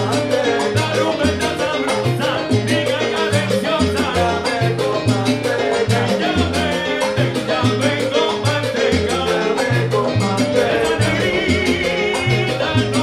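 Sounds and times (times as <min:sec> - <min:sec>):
keyboard: 0:00.0 - 0:13.0
salsa band playing: 0:00.0 - 0:13.0
timbales congas and guiro rhythm: 0:00.0 - 0:13.0
bass line: 0:03.5 - 0:13.0.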